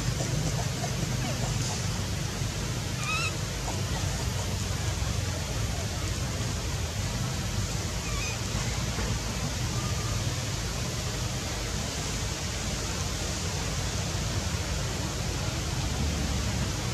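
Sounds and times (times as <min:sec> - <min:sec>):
outdoor background noise: 0:00.0 - 0:16.9
short high calls: 0:03.0 - 0:03.4.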